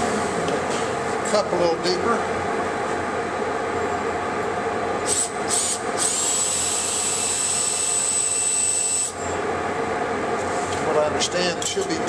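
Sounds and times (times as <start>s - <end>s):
cordless drill motor whine: 5.1s - 9.3s.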